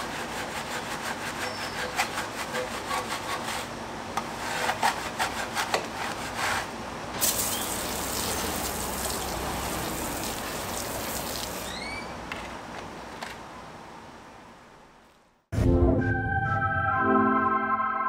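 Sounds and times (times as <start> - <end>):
pump sprayer hissing: 7.2 - 11.9.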